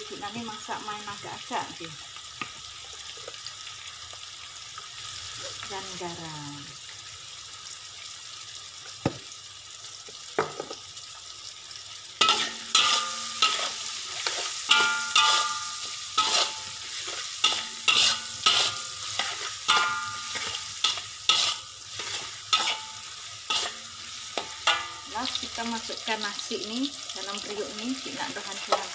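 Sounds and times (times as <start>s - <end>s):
food sizzling: 0.0s - 28.9s
spatula scraping metal wok: 12.2s - 25.6s
wok ringing: 12.2s - 28.9s.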